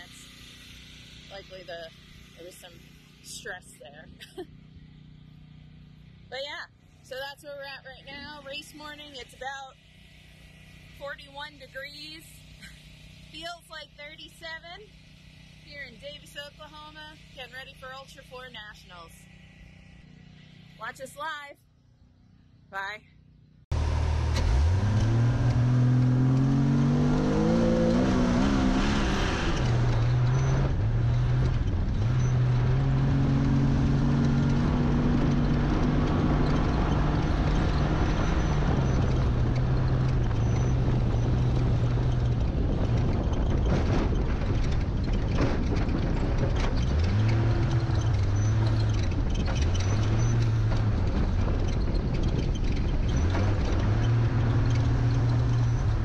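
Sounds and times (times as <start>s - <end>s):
truck engine revving: 23.7s - 56.0s
tyres rushing on dirt: 23.7s - 56.0s
knocks and rattles: 29.5s - 56.0s.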